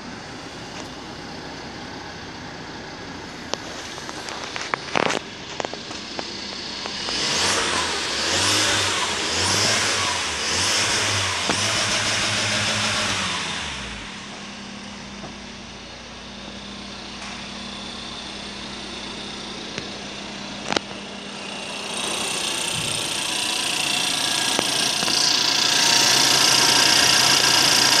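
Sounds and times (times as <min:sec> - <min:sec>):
engine idling: 0:00.0 - 0:28.0.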